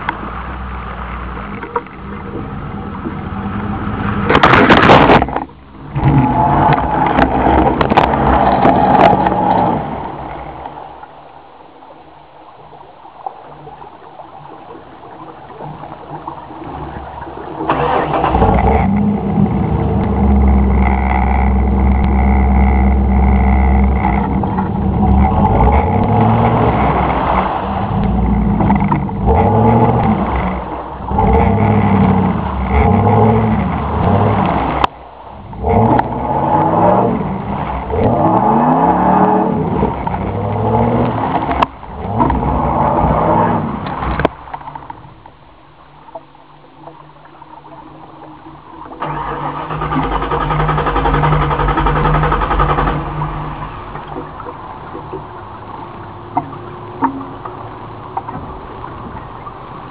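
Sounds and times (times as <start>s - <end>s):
truck engine revving: 1.7s - 10.3s, 17.6s - 44.2s, 49.0s - 54.4s.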